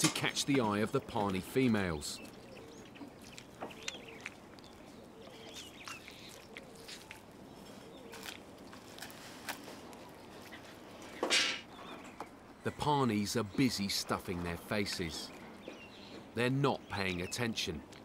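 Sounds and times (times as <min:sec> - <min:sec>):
faint bird calls: 0:01.9 - 0:12.9.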